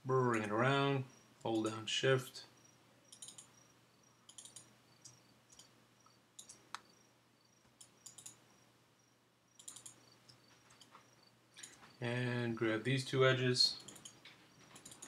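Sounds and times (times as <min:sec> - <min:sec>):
computer mouse clicks: 0:03.1 - 0:03.6, 0:04.2 - 0:06.9, 0:07.7 - 0:08.4, 0:09.6 - 0:11.9, 0:13.8 - 0:15.0.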